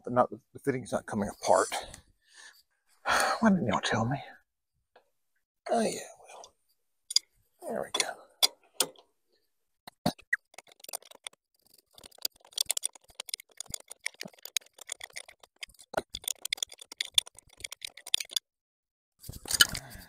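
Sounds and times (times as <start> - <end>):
wrench clicking and rattling: 10.5 - 18.4.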